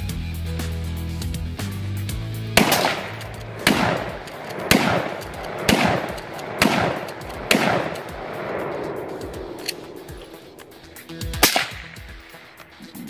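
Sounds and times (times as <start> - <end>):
gunshot echo: 2.4 - 13.0
suppressed rifle shots: 2.4 - 13.0.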